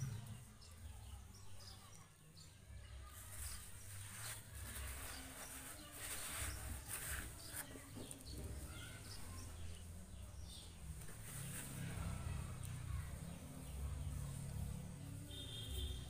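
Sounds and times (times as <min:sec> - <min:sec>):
hands scraping dry potting soil: 0:03.2 - 0:09.6, 0:10.5 - 0:12.8.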